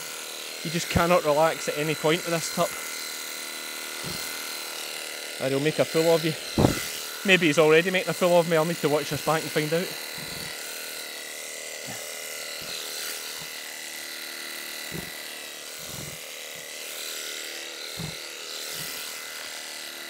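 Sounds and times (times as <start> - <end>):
electric shears humming: 0.0 - 20.0
soft low thumps: 6.6 - 6.9.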